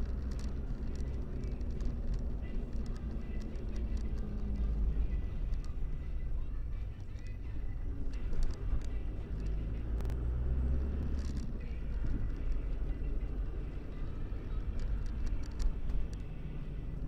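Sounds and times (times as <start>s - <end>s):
engine and tyre rumble: 0.0s - 17.0s.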